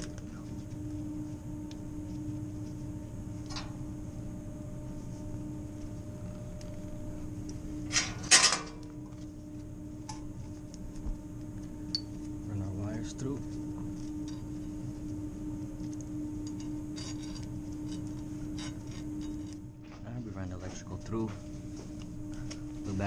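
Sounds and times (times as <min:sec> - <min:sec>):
low mechanical hum: 0:00.0 - 0:23.0
metal conduit clicks and clatters: 0:07.9 - 0:08.8.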